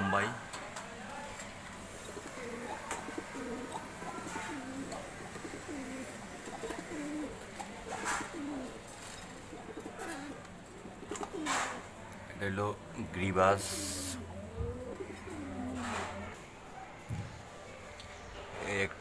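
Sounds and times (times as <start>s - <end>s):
pigeons cooing: 1.9s - 12.0s, 13.5s - 16.4s.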